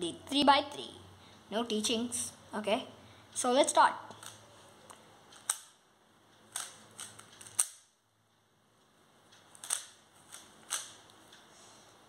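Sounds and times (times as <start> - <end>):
puzzle cube clicking: 4.1 - 5.8, 6.5 - 7.9, 9.4 - 11.2.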